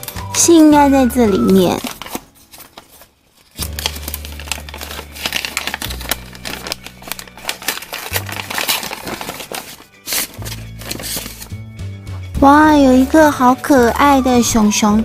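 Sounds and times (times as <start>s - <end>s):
paper bag crinkling: 1.0s - 11.6s
tape peeling: 1.8s - 11.5s
background music with bass line: 11.5s - 12.7s.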